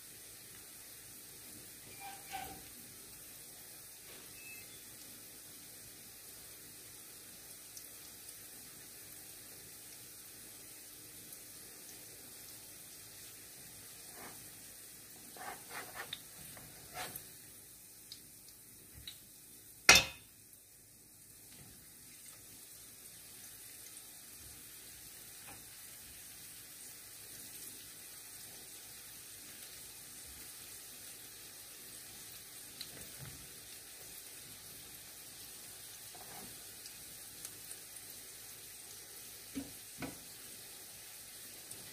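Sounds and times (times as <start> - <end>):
fritters sizzling in oil: 0.0 - 41.9
sharp knock against pan: 19.9 - 20.3.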